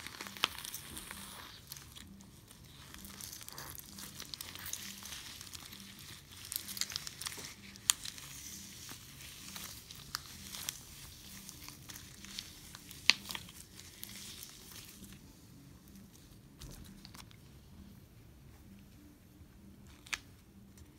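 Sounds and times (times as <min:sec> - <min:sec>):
crunchy slime crackling: 0:00.0 - 0:15.3.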